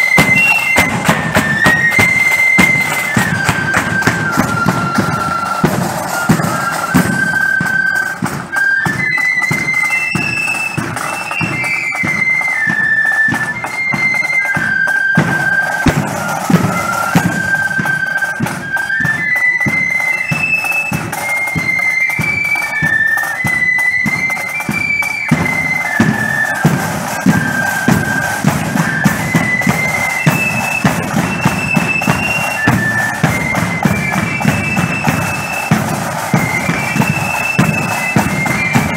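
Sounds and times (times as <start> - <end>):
flute band playing: 0.0 - 38.9
marching drums: 0.0 - 38.9.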